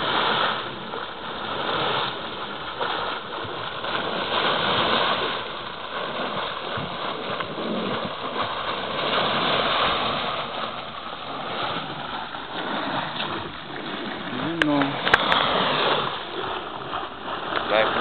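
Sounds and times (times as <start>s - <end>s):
liquid rushing and splashing: 0.0s - 18.0s.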